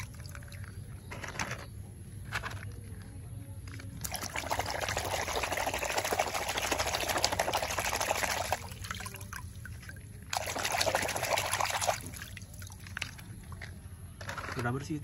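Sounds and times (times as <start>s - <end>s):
muddy water sloshing in a basin: 0.0s - 3.0s, 3.6s - 13.9s.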